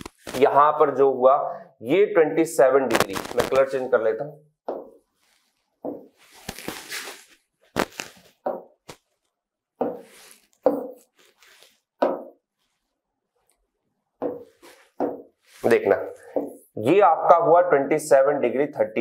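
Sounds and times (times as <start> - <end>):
fingertip taps on touchscreen: 14.2 - 15.2.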